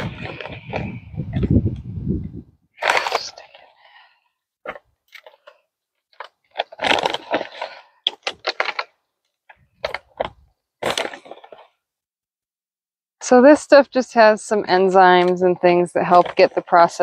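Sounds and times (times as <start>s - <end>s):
bag crinkling and crunching: 2.8s - 11.8s.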